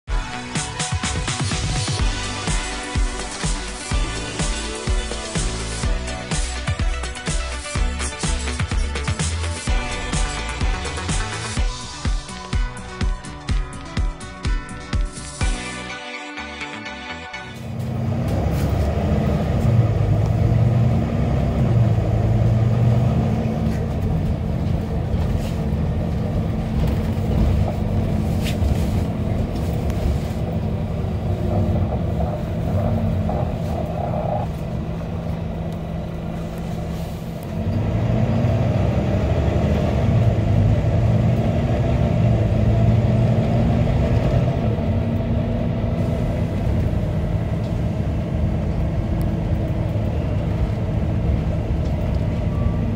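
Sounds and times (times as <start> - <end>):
bus engine revving: 17.5 - 52.9.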